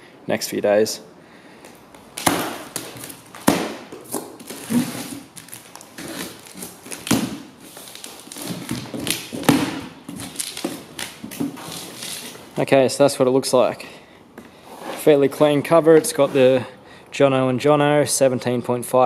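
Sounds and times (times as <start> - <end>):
cardboard knocks and thuds: 2.2 - 12.4
cardboard scraping and rustling: 2.2 - 12.6, 14.6 - 16.6.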